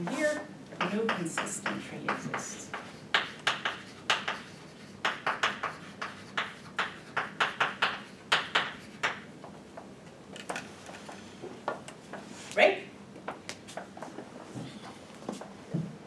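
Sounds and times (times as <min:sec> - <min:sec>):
chalk tapping and scraping on blackboard: 0:00.0 - 0:09.9.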